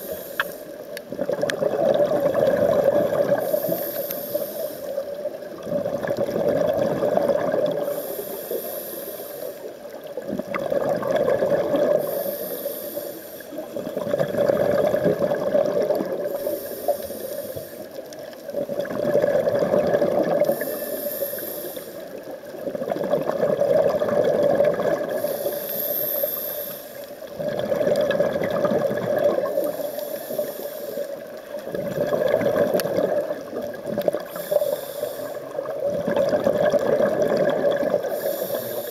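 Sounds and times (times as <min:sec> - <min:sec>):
regulator inhale hiss: 0:00.0 - 0:00.9, 0:03.3 - 0:05.2, 0:07.8 - 0:10.0, 0:11.9 - 0:13.8, 0:16.2 - 0:18.3, 0:20.4 - 0:22.3, 0:25.0 - 0:27.3, 0:29.4 - 0:31.2, 0:34.2 - 0:35.6, 0:38.0 - 0:38.9.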